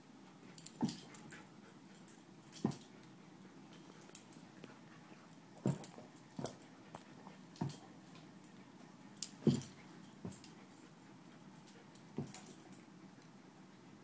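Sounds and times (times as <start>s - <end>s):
dog thudding on carpet: 5.6s - 6.6s, 9.4s - 10.5s.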